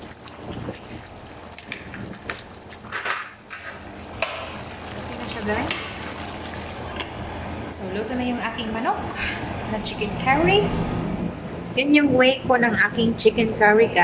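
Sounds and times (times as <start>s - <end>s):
curry sizzling in a pot: 0.0s - 7.7s.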